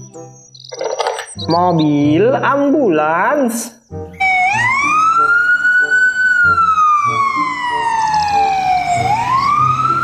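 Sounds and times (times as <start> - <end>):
ambulance siren wailing: 4.2 - 10.0.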